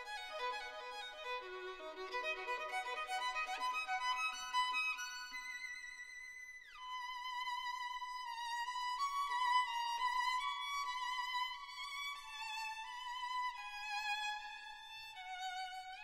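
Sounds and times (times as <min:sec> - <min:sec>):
slow violin melody: 0:00.0 - 0:16.0.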